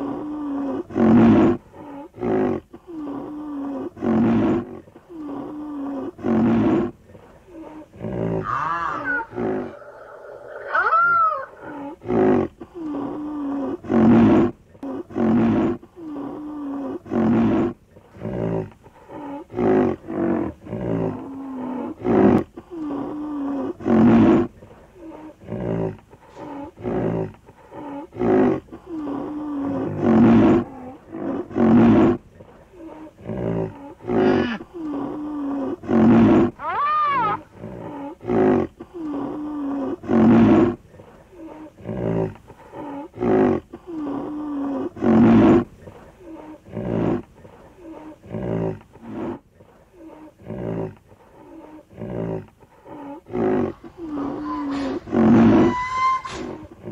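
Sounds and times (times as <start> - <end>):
rhinoceros calls: 8.4 - 11.7, 36.0 - 37.9, 52.9 - 56.9
high squeal-like tone: 55.5 - 56.6.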